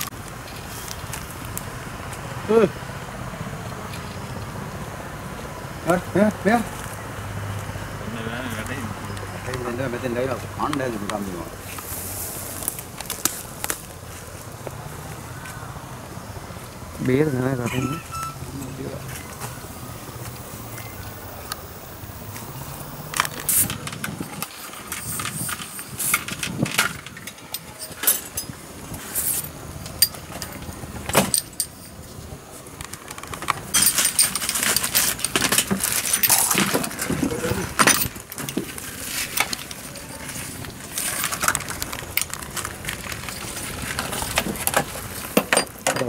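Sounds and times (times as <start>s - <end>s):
metal and plastic kit clattering: 23.2s - 28.5s, 32.9s - 46.0s.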